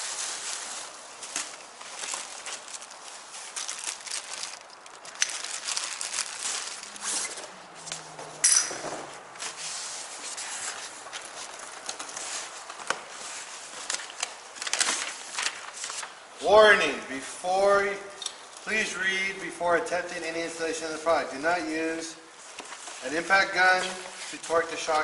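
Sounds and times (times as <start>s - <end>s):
plastic wrapping crinkling: 0.0s - 8.0s, 9.5s - 16.3s.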